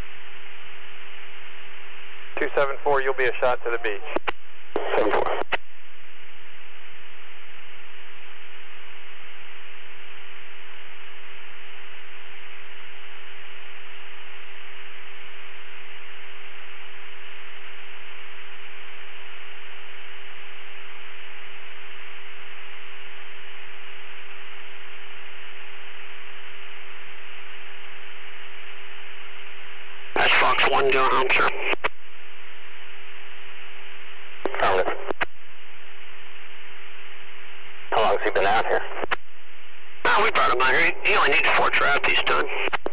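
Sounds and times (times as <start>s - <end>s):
static hiss: 0.0s - 42.9s
steady hum: 0.0s - 42.9s.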